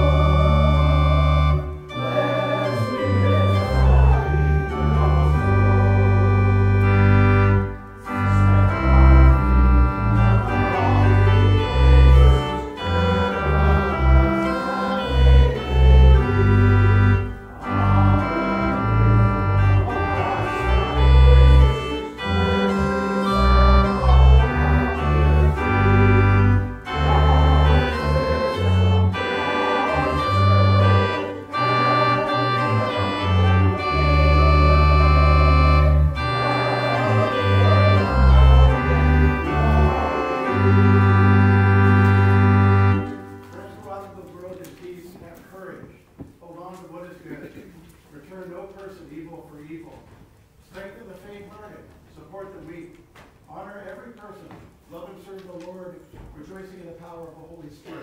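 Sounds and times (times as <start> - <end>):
organ playing a hymn: 0.0 - 45.5.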